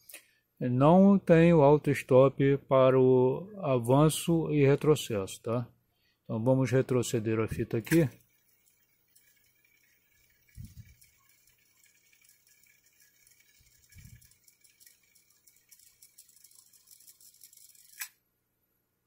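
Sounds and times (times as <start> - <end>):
cassette deck rewinding whir: 7.6 - 18.1.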